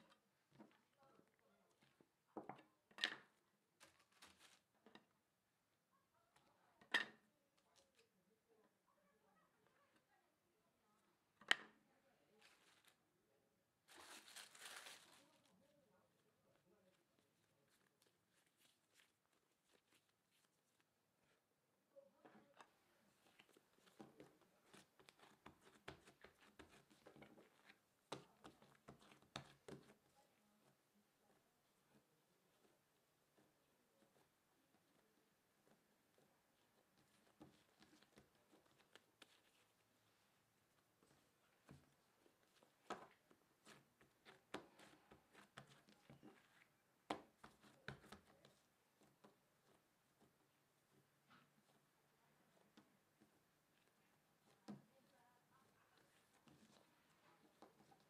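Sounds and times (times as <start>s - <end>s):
hands patting dough: 16.6s - 21.4s, 22.2s - 58.0s.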